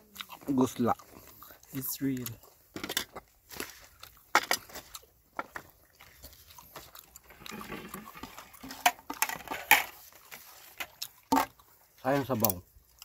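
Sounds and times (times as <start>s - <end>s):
chewing: 0.0s - 13.0s
scraping rustle: 7.2s - 11.0s.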